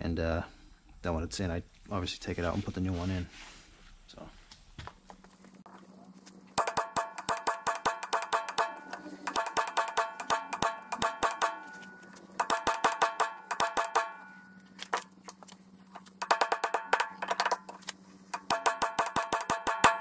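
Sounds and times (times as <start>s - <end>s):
hammer striking steel: 6.6s - 15.0s, 16.0s - 20.0s.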